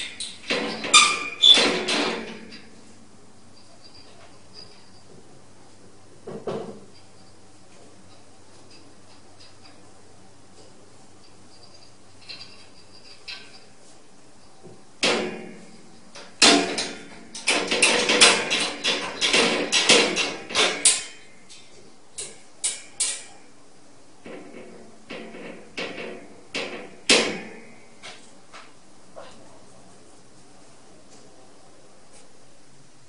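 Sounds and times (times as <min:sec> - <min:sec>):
cage rattling and clanking: 0:00.0 - 0:02.8, 0:11.2 - 0:13.8, 0:15.0 - 0:23.5, 0:24.2 - 0:28.3.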